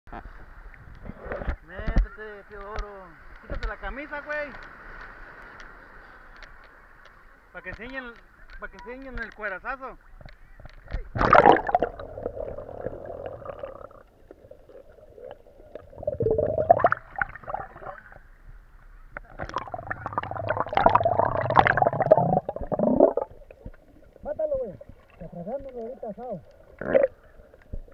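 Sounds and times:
water splash: 11.0s - 18.1s, 19.2s - 25.8s
muffled underwater gurgling: 11.0s - 18.2s, 19.2s - 27.9s.

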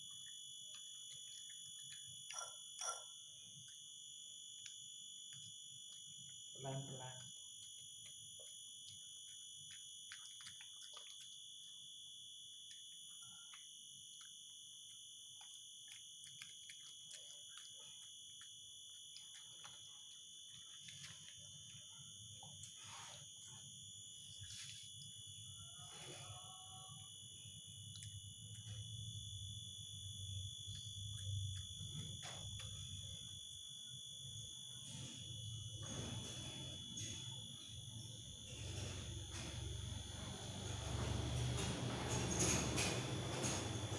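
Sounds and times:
dog chewing and bowl clicks: 0.8s - 3.8s, 8.4s - 11.4s.

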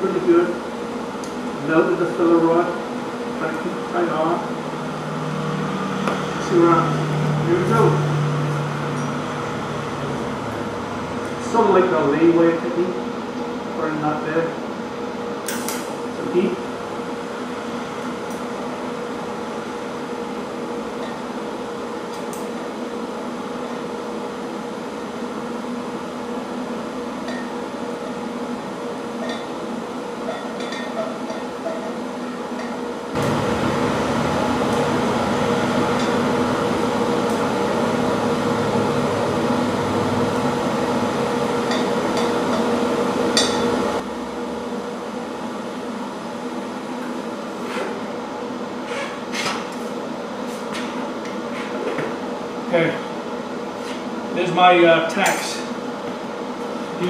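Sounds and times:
welder hum and hiss: 33.1s - 44.0s.

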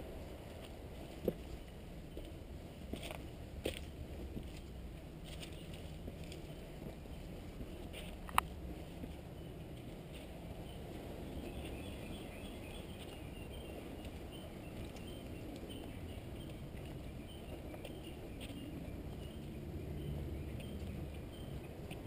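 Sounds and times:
small birds chirping: 5.3s - 22.0s.

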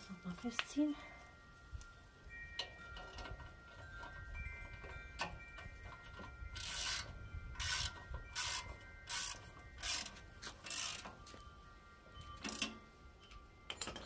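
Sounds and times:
ratchet wrench clicking: 6.2s - 11.1s, 12.4s - 12.8s.

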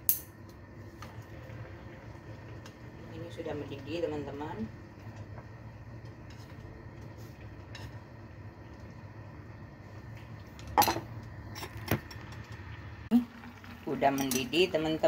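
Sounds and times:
steady low hum: 0.0s - 15.0s
metal cookware clatter: 10.6s - 12.2s, 14.0s - 14.7s.

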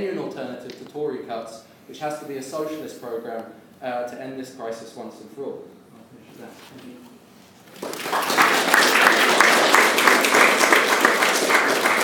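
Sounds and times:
audience applauding: 7.7s - 12.0s.

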